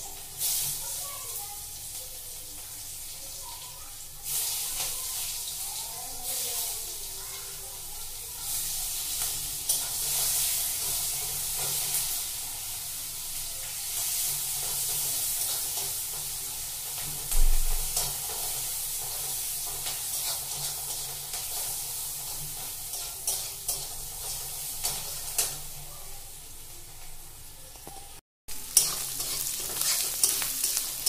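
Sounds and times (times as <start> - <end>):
food sizzling in a wok: 0.0 - 31.0
spatula stirring: 19.0 - 25.6, 28.5 - 31.0.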